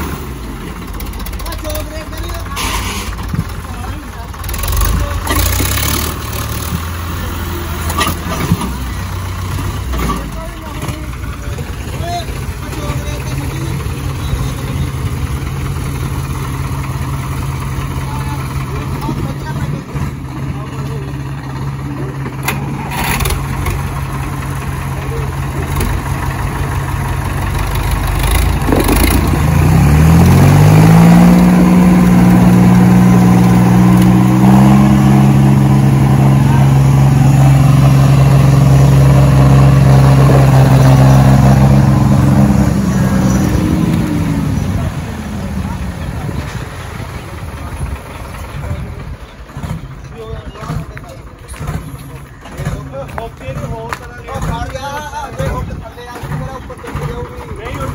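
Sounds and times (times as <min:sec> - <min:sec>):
diesel tractor engines rumbling: 0:00.0 - 0:57.9
engine revving up: 0:04.4 - 0:10.2, 0:22.4 - 0:24.2, 0:27.7 - 0:48.9.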